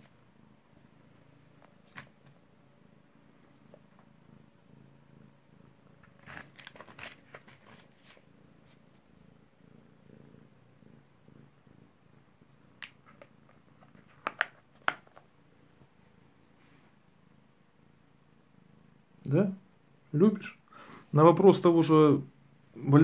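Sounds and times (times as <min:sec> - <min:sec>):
cat purring: 0:00.0 - 0:23.0
cat crunching tablets: 0:06.1 - 0:08.2.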